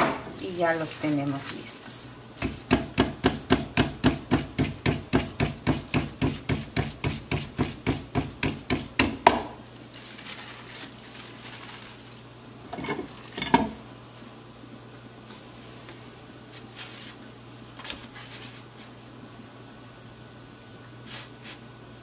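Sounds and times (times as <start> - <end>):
hands slapping dough: 2.4 - 9.6
tortilla press knocks: 2.4 - 9.6.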